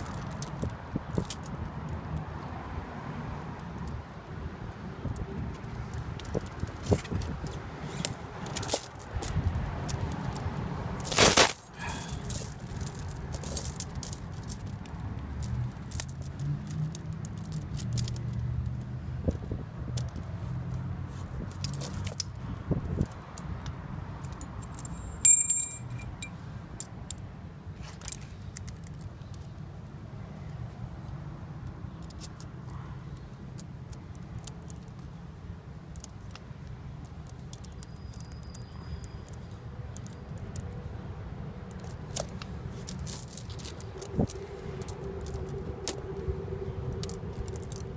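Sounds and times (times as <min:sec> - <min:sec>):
chain links clinking: 0:00.0 - 0:02.3, 0:05.0 - 0:20.3, 0:21.2 - 0:27.2, 0:35.9 - 0:40.7, 0:41.7 - 0:46.2, 0:46.9 - 0:47.9
sharp metal clanks: 0:11.0 - 0:18.2, 0:24.6 - 0:26.3.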